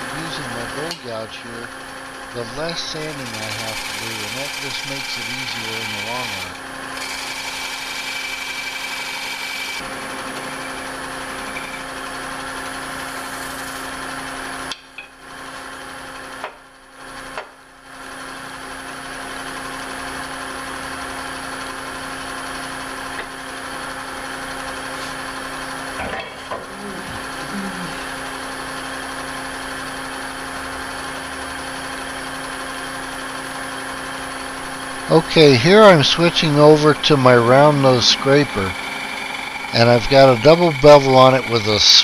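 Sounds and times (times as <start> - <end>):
wood lathe running: 0.0 - 14.7, 27.1 - 42.0
gouge scraping wood shavings: 3.0 - 9.8.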